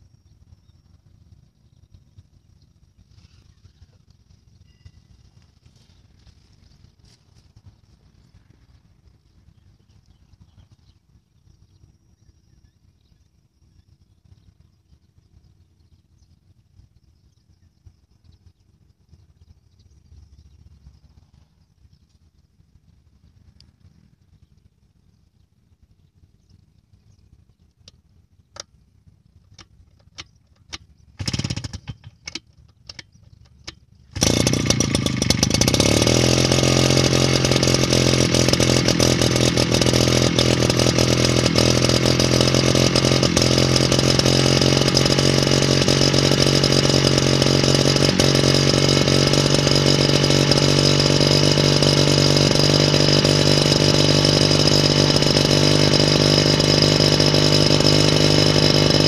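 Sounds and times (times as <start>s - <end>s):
small engine idling: 0.0s - 59.0s
starter cord pull: 29.5s - 36.3s.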